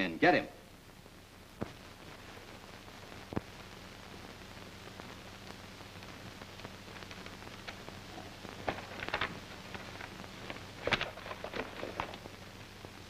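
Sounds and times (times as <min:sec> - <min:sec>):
film soundtrack hiss and hum: 0:00.0 - 0:13.0
faint clicks: 0:03.2 - 0:03.7
paper rustling: 0:08.1 - 0:12.3.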